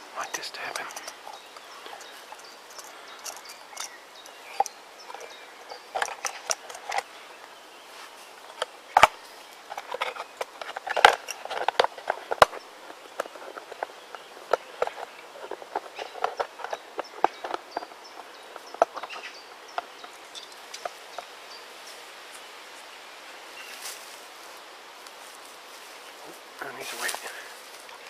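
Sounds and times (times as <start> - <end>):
camping kit rustling and clicking: 0.0 - 28.0.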